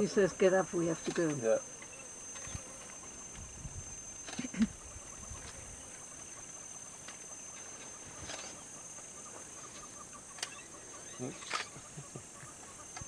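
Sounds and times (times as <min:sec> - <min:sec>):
faint chirping: 0:00.0 - 0:13.0
high insect drone: 0:00.0 - 0:13.0.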